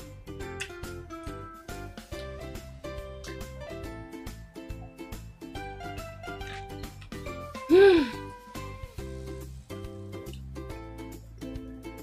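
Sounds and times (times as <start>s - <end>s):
instrumental music with plucked notes: 0.0s - 8.9s.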